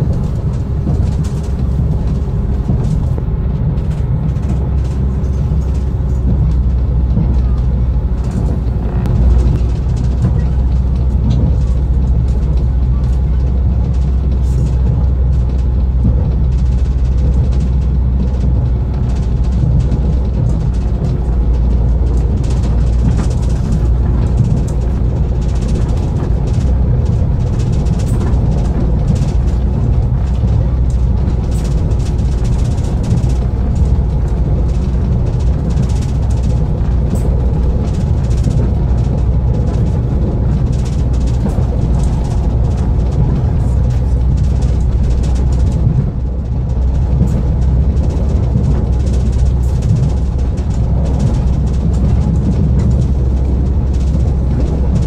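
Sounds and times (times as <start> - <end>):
train running gear rumble: 0.0 - 55.0
wheels clicking on track: 0.0 - 55.0.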